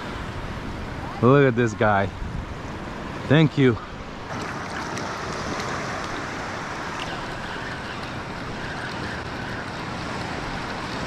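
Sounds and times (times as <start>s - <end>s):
wind on microphone: 0.0s - 3.3s
surf lapping on beach: 0.0s - 11.0s.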